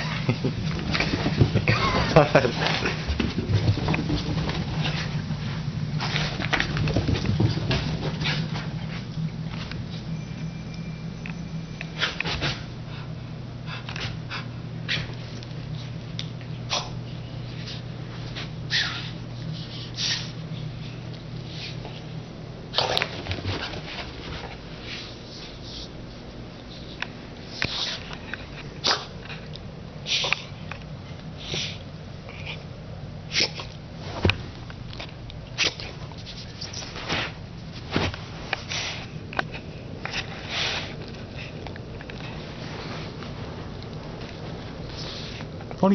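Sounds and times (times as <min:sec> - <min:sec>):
dog blowing breaths through nose: 0:40.4 - 0:41.0.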